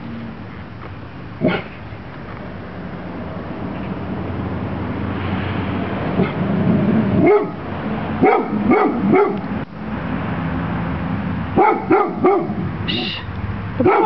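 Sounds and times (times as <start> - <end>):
large dog barking: 1.4 - 1.8, 6.2 - 6.5, 7.1 - 9.5, 11.5 - 13.1, 13.8 - 14.0.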